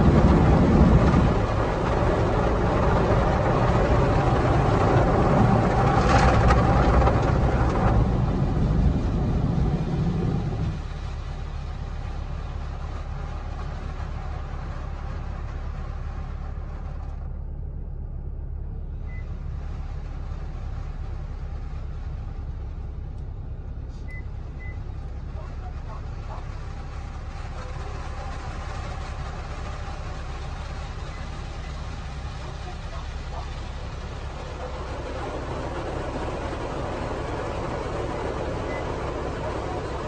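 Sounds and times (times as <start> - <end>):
car wash rushing noise: 0.0 - 17.4, 18.7 - 40.0.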